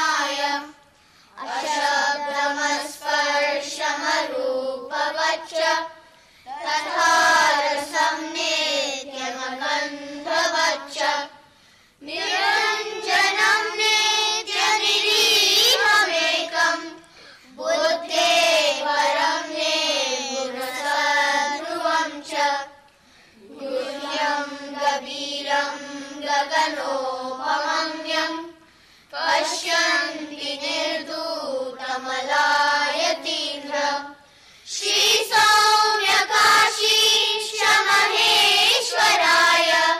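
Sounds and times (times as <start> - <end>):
children chanting in unison: 0.0 - 0.7, 1.4 - 11.4, 12.0 - 22.7, 23.4 - 39.9.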